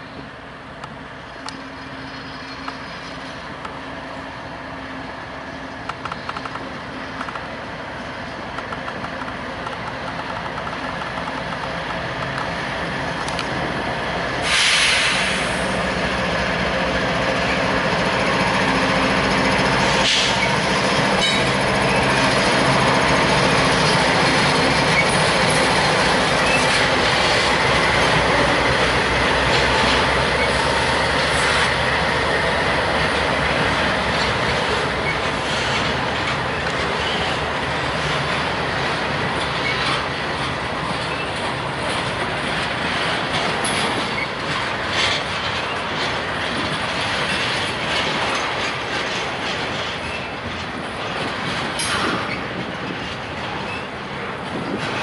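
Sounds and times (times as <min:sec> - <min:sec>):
diesel locomotive engines: 0:00.0 - 0:55.0
brief burst of hiss: 0:14.4 - 0:15.7.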